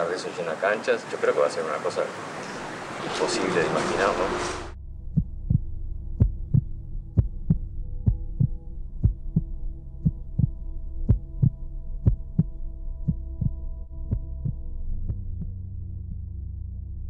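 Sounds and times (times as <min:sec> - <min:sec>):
held drone of steady tones: 0:02.2 - 0:05.1
heartbeat double thump: 0:04.6 - 0:15.5.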